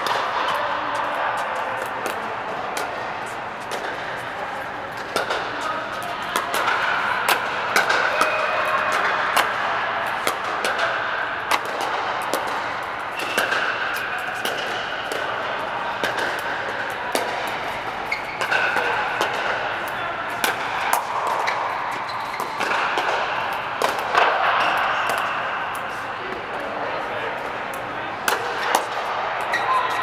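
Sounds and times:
background din in sports hall: 0:00.0 - 0:30.0
paddles striking plastic balls: 0:06.3 - 0:25.3.

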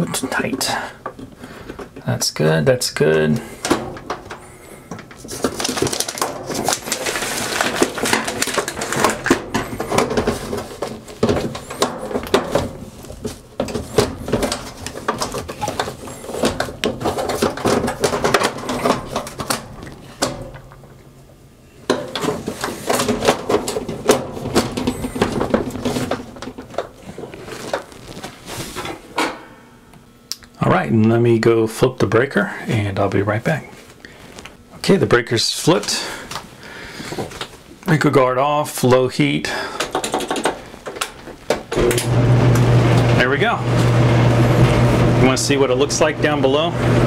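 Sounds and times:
clattering of panel being handled: 0:03.6 - 0:21.0.

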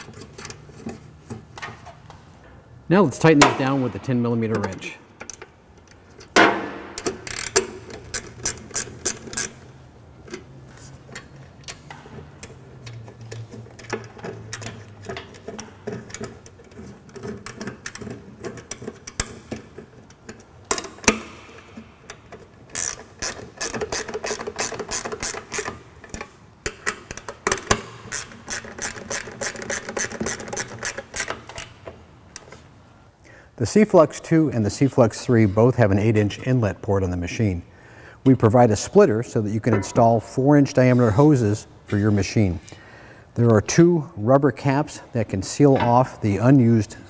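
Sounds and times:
ratcheting wrench clicking: 0:07.0 - 0:09.7, 0:11.1 - 0:32.0.

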